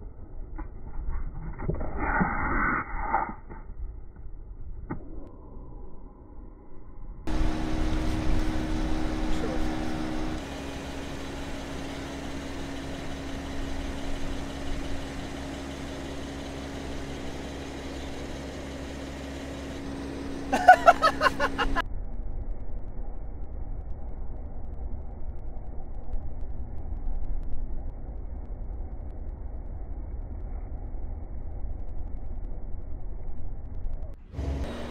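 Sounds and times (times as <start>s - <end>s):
car rolling and idling: 7.3s - 21.8s, 33.6s - 34.9s.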